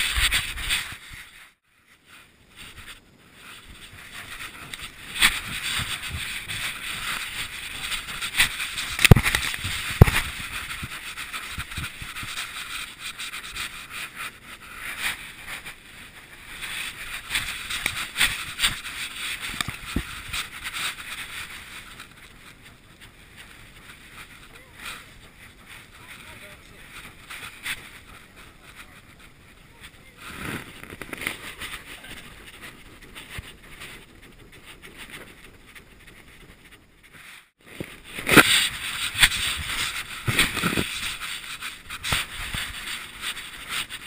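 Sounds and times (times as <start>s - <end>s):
long grass rustling against camera: 0.0s - 44.0s.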